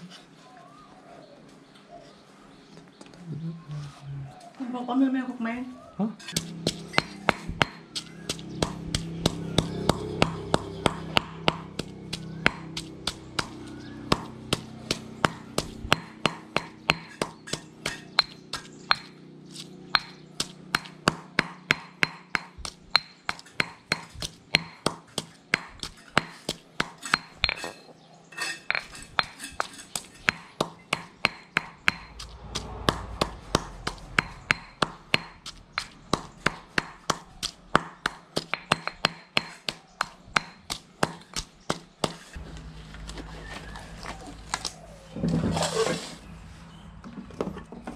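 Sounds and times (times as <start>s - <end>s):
stone pestle pounding in mortar: 6.2s - 19.2s, 19.9s - 27.8s, 28.7s - 42.4s.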